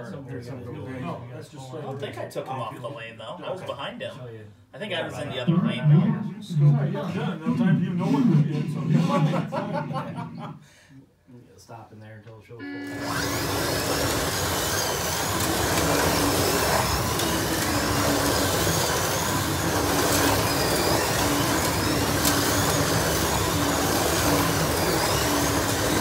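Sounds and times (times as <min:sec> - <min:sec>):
slot car motors whirring: 0:12.6 - 0:26.0.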